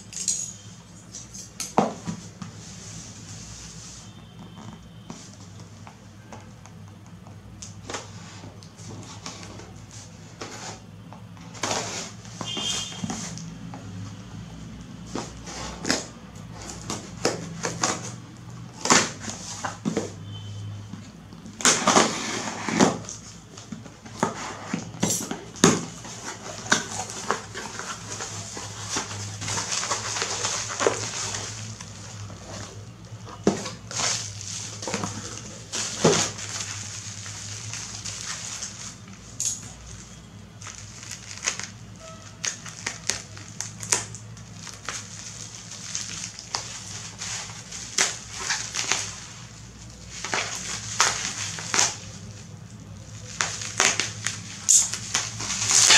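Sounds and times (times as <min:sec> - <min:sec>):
plastic pouch and bubble wrap crinkling: 0:11.6 - 0:14.0, 0:21.5 - 0:55.9
scissors cutting plastic: 0:53.3 - 0:55.9
blade slitting packing tape: 0:53.4 - 0:55.9.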